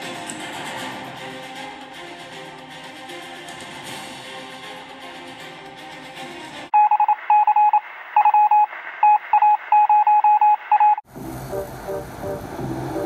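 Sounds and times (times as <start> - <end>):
background music: 0.0 - 6.7, 11.1 - 13.0
telephone dialing beeps: 6.8 - 11.0.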